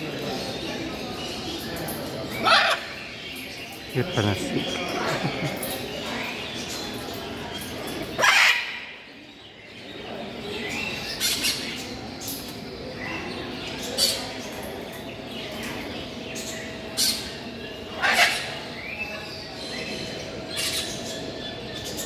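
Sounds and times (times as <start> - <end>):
steady background noise: 0.0 - 22.0
parrots squawking: 2.3 - 3.0, 18.0 - 18.6.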